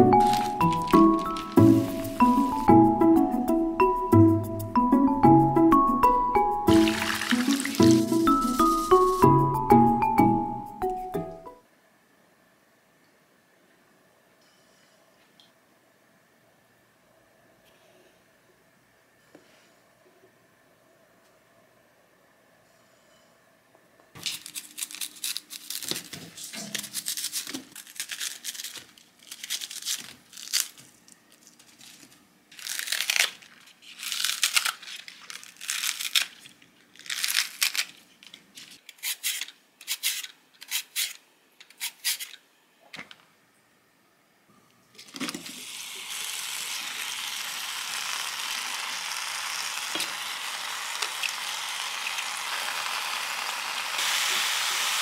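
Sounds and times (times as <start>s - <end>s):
scissors snipping vegetables: 24.2s - 30.8s, 38.8s - 42.4s
steady hiss: 53.8s - 55.0s.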